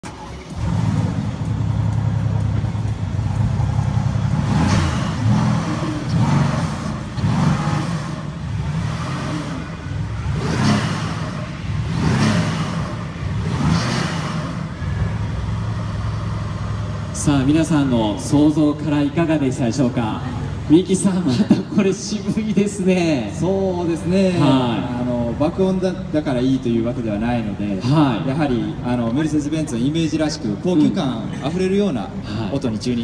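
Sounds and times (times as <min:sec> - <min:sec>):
engine throttle blips: 0:00.0 - 0:19.6
car engine idling deeply: 0:00.0 - 0:33.0.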